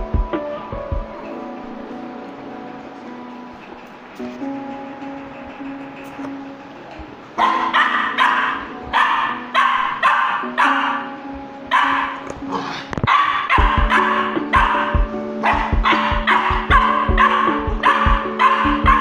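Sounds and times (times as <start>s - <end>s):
background music with low beat: 0.0s - 19.0s
small dog barking: 7.4s - 19.0s.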